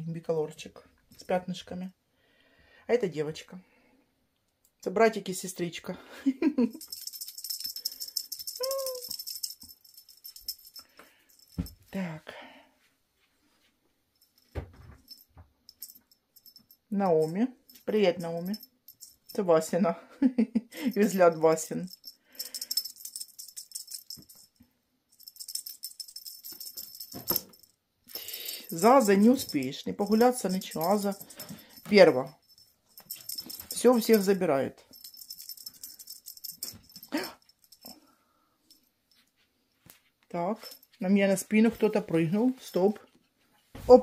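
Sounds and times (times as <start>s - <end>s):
small bell jingling: 6.6s - 12.0s, 14.2s - 19.9s, 20.8s - 39.4s, 40.4s - 42.9s
toy rattle shaking: 6.7s - 11.8s, 15.1s - 19.4s, 20.8s - 38.0s
soft thump: 14.5s - 15.0s.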